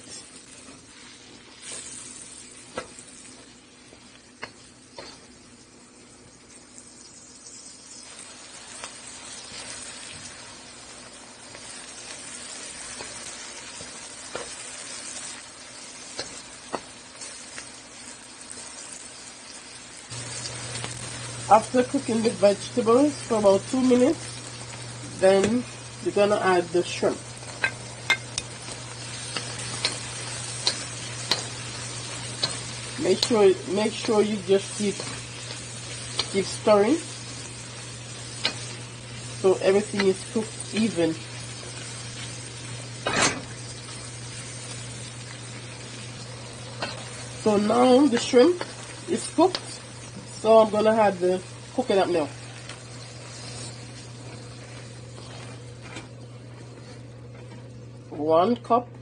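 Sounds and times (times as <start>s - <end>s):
vegetables sizzling in oil: 0.0s - 58.9s
steady low hum: 20.1s - 59.0s.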